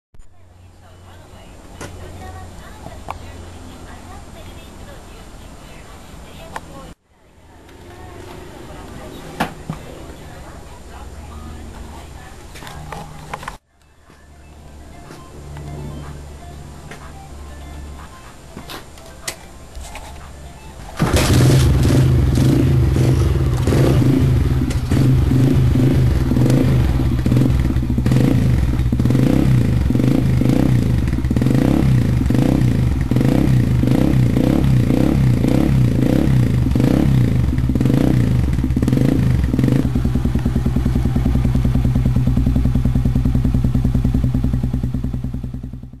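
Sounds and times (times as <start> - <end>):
motorcycle engine revving and idling: 21.0 - 46.0.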